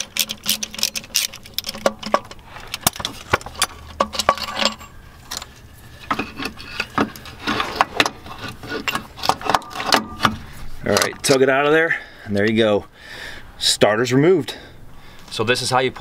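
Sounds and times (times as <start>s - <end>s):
metallic clicks and clinks: 0.0s - 5.6s.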